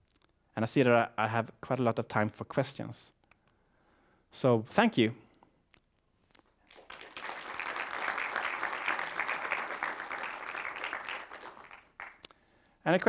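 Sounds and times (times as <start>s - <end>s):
audience applauding: 6.7s - 12.3s.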